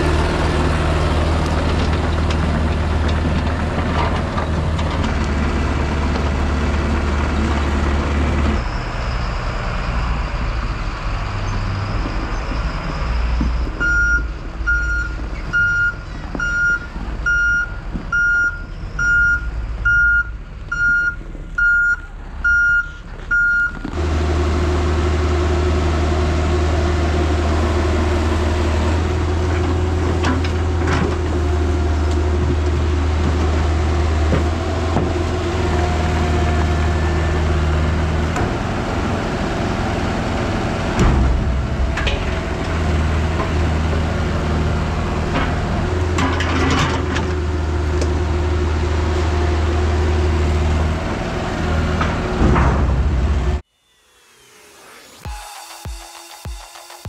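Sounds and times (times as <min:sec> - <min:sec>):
heavy diesel engine running: 0:00.0 - 0:53.7
reversing alarm beeping: 0:13.4 - 0:23.9
knocks and rattles: 0:40.9 - 0:44.0.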